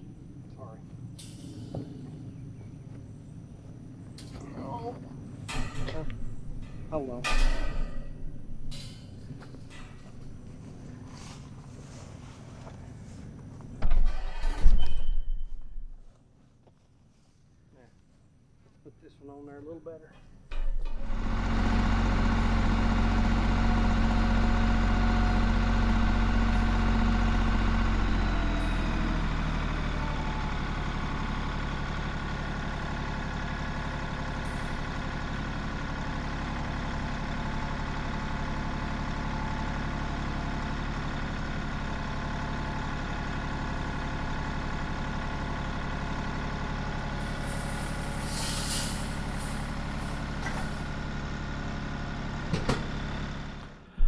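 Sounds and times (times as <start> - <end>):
tractor engine running: 0.0 - 14.2, 20.4 - 54.0
brief hiss: 47.2 - 49.8.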